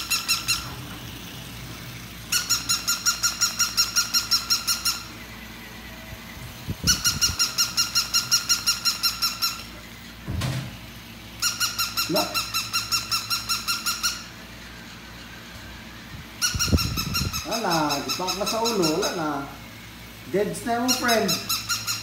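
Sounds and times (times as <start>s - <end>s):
thump: 10.2s - 10.8s.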